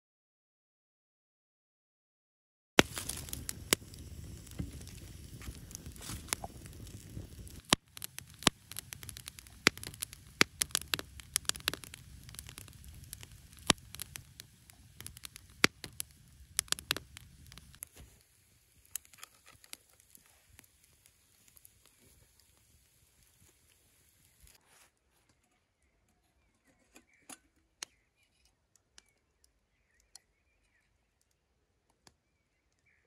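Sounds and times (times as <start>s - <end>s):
campfire crackling and popping: 2.8s - 24.6s
low fire rumble: 2.8s - 24.6s.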